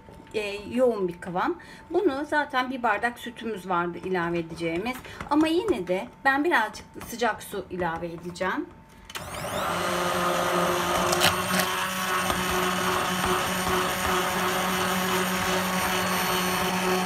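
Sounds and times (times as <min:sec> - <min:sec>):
hand blender running: 0:09.2 - 0:17.0.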